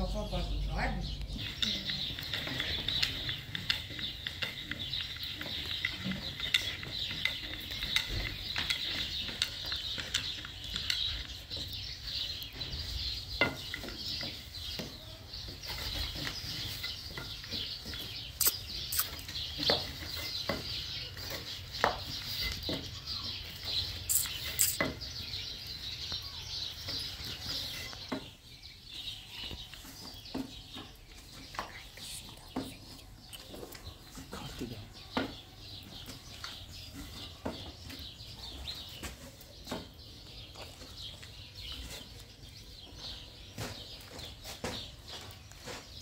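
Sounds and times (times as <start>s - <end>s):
utensil scraping in pot: 24.1s - 24.8s.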